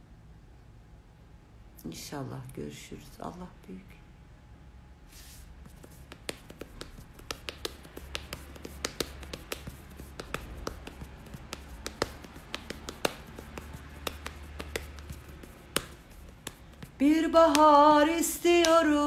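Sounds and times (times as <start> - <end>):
low steady hum: 0.0 - 19.0
hand taps on hard surface: 5.8 - 17.7.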